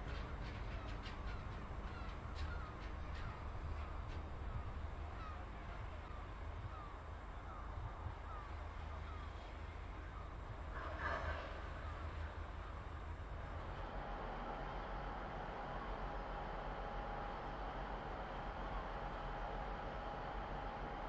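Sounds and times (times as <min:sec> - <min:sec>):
wheels clicking over rail joints: 0:00.0 - 0:04.8
low rumble of wagons: 0:00.0 - 0:21.0.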